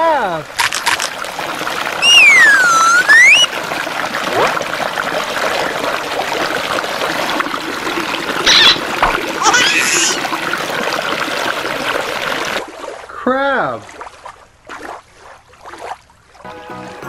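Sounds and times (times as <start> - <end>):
creek running over rocks: 0.0 - 15.7
whistle-like tone: 2.0 - 3.5.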